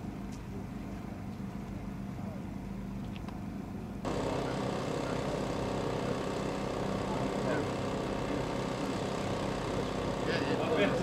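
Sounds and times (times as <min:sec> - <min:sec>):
engine idling: 0:04.0 - 0:11.0.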